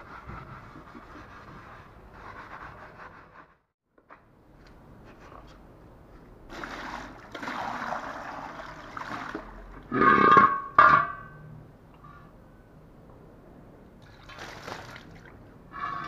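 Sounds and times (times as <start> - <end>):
steel wheel grating on tile: 9.9 - 10.7, 15.7 - 16.0
water splashing over metal wheel: 14.0 - 16.0.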